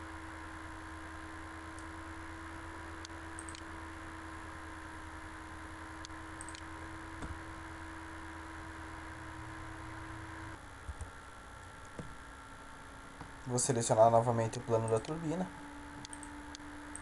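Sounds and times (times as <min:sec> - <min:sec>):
recording hum and hiss: 0:00.0 - 0:17.0
faint mouse clicks: 0:16.0 - 0:17.0.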